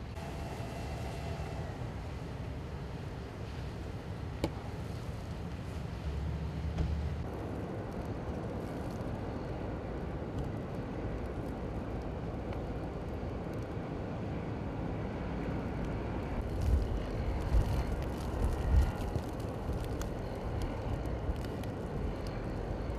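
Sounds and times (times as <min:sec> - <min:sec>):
strong blizzard wind: 0:00.0 - 0:22.9
wind gusts buffeting microphone: 0:15.1 - 0:22.9.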